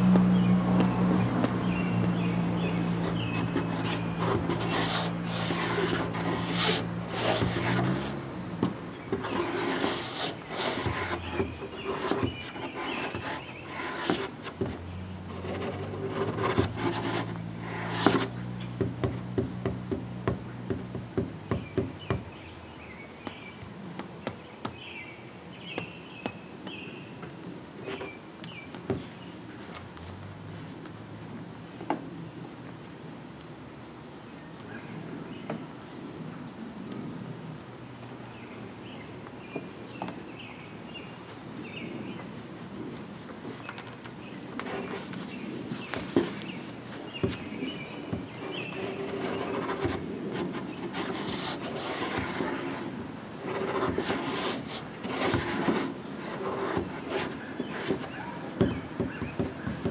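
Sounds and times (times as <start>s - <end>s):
bird chirps: 1.6s - 4.2s, 43.6s - 49.6s
rustling and knocks: 43.7s - 59.9s.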